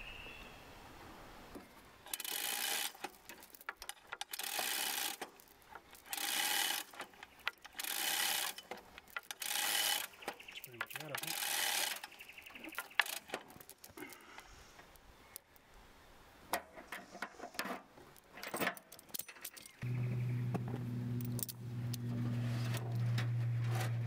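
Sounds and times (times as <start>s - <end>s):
ratchet clicks: 2.1s - 13.8s
hoist chain rattling: 2.1s - 13.9s.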